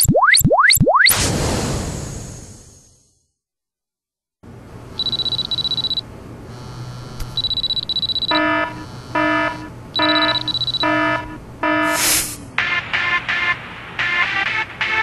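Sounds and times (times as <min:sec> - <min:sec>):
pitched electronic beeps: 0:00.0 - 0:01.2, 0:05.0 - 0:06.0, 0:07.4 - 0:12.1
high electronic buzzing tone: 0:04.9 - 0:12.3.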